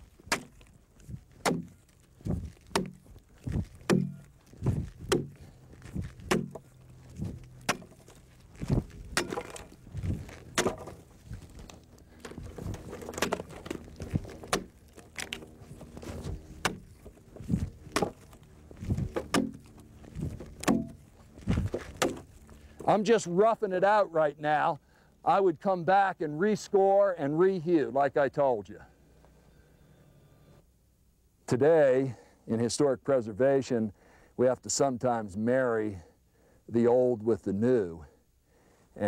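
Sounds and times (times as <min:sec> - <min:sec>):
axe chopping log: 0:00.2 - 0:00.7, 0:01.3 - 0:05.5, 0:06.2 - 0:11.0, 0:12.2 - 0:22.3.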